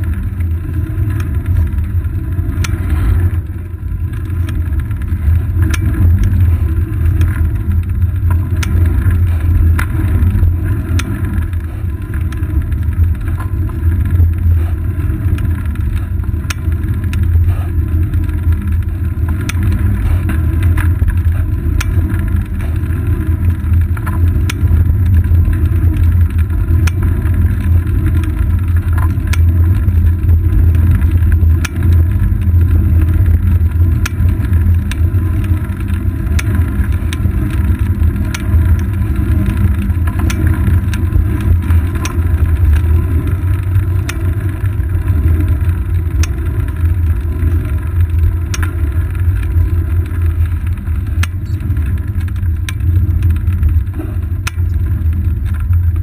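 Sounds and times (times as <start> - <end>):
road vibration rumble: 0.0 - 56.0.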